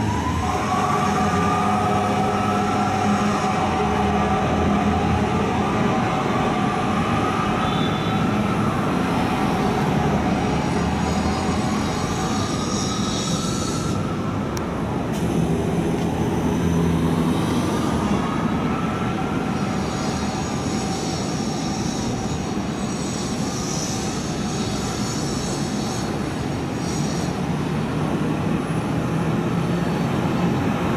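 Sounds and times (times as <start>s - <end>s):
city traffic: 0.0s - 30.9s
fire truck siren wailing: 0.0s - 30.9s
air horn blasts: 0.4s - 8.6s.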